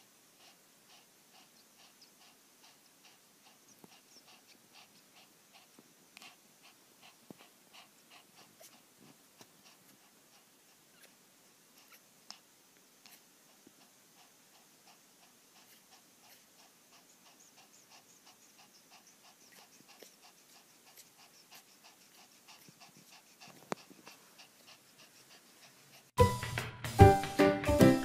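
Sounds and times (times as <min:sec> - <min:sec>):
puppy breathing: 0:00.0 - 0:26.2
puppy whimpering: 0:01.4 - 0:08.8, 0:10.4 - 0:11.2, 0:11.8 - 0:12.4, 0:15.6 - 0:26.1.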